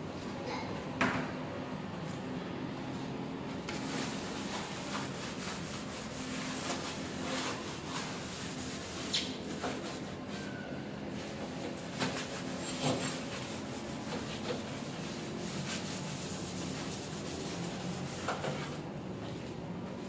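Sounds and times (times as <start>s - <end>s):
sponge scrubbing metal stovetop: 3.8s - 10.5s, 11.2s - 18.8s.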